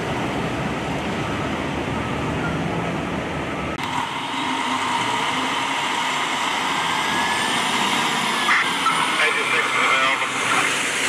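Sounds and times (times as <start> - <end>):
emergency vehicles idling: 0.0 - 11.0
whirring hum with high whine: 3.5 - 10.9.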